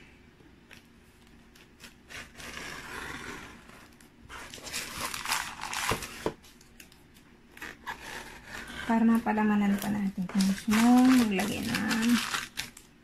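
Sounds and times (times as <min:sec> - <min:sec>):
paper rustling: 0:04.3 - 0:07.1, 0:09.1 - 0:12.9.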